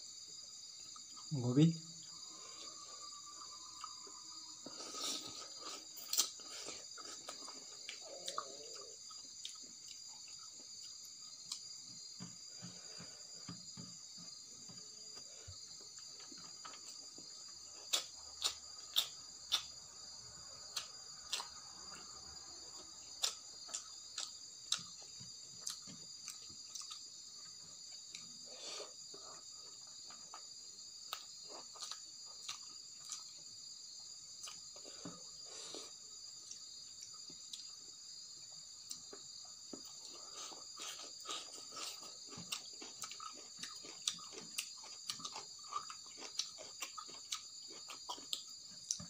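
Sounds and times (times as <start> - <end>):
crickets chirring: 0.0 - 49.0
chewing: 2.0 - 19.8, 20.7 - 33.5, 38.4 - 49.0
eating from a steel plate: 2.0 - 19.8, 34.3 - 49.0.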